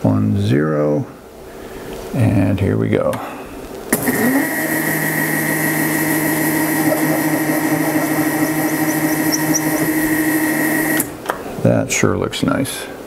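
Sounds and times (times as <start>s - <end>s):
milling machine spindle whine: 3.9s - 11.1s
bit cutting metal: 3.9s - 11.2s.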